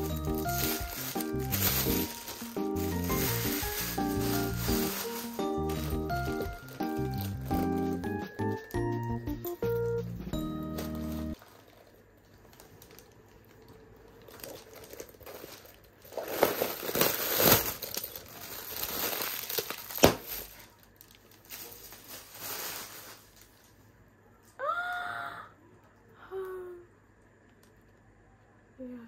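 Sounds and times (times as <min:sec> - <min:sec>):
plastic bags crinkling: 0:00.0 - 0:23.8.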